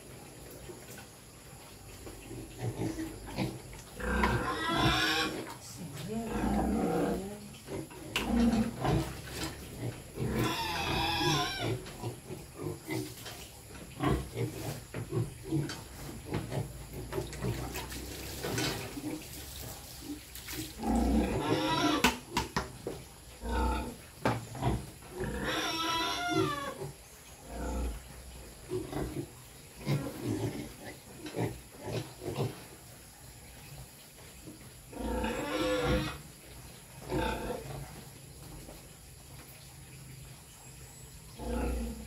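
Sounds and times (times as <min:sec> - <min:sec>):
piglets squealing: 0:04.4 - 0:05.4, 0:10.3 - 0:11.8.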